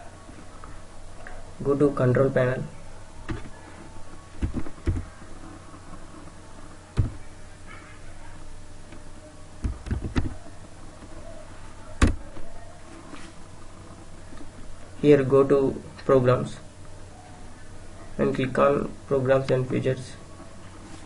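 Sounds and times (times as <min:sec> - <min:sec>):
steady low hum: 0:00.0 - 0:21.0
keyboard and mouse clicks: 0:04.4 - 0:05.1, 0:09.6 - 0:10.4.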